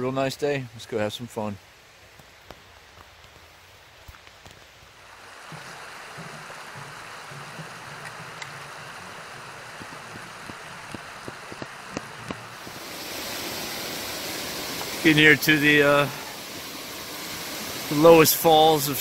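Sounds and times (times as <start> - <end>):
creek water rushing: 0.7 - 19.0
footsteps on metal footbridge: 5.5 - 12.7.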